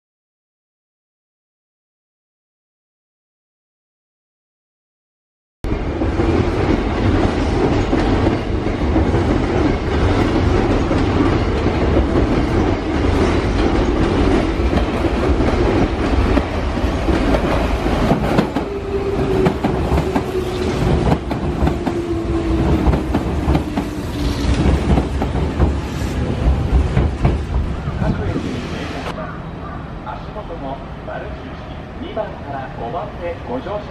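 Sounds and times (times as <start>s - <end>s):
train wheels clacking: 5.9s - 28.2s.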